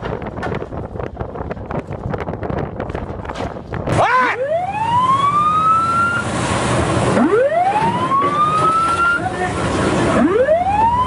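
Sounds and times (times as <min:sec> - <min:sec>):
steady rushing noise: 0:00.0 - 0:11.0
siren wailing: 0:04.0 - 0:06.4, 0:07.2 - 0:09.4, 0:10.1 - 0:11.0.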